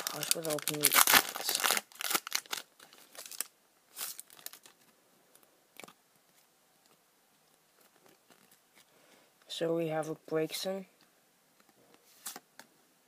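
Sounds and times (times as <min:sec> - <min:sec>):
foil wrapper crinkling and tearing: 0:00.0 - 0:04.9, 0:07.8 - 0:08.9.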